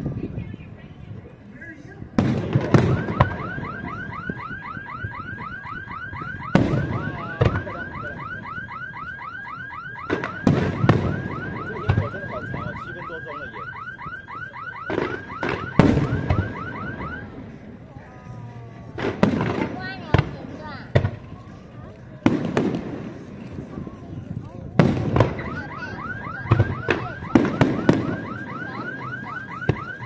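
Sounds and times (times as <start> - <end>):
fireworks bursting with loud bangs: 2.0 - 8.6, 9.8 - 13.5, 14.6 - 18.0, 18.8 - 30.0
car alarm chirping: 2.8 - 17.3, 25.2 - 30.0.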